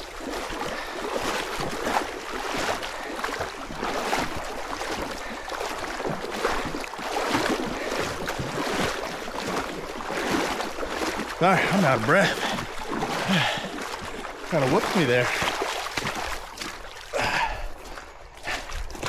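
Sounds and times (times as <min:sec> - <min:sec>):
water sloshing around waders: 0:00.0 - 0:19.0.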